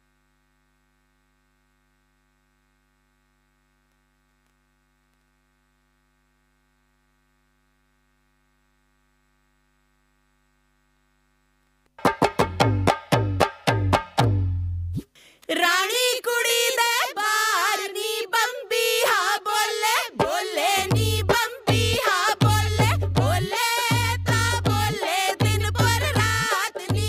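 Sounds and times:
faint electrical hum: 0.0s - 12.0s
loud rhythmic drum strokes: 12.0s - 14.6s, 20.2s - 27.0s.

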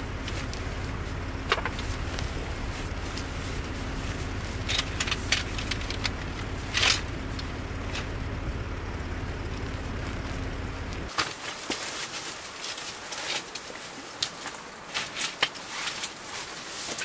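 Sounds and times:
car engine and road rumble: 0.0s - 17.0s
faint steady hum: 0.0s - 17.0s.

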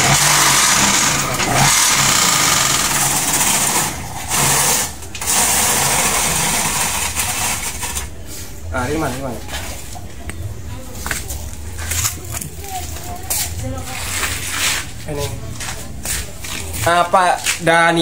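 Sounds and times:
low motor hum: 0.0s - 8.0s.

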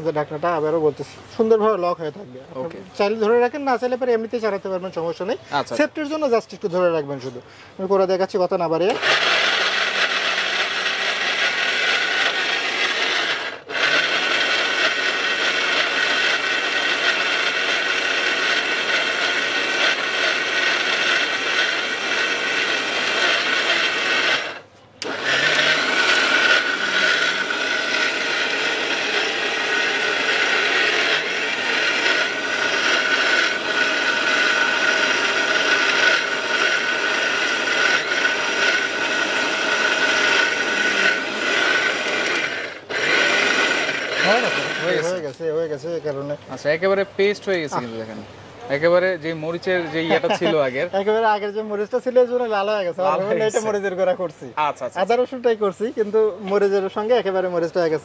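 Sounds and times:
mixer grinder whining: 8.8s - 45.3s.

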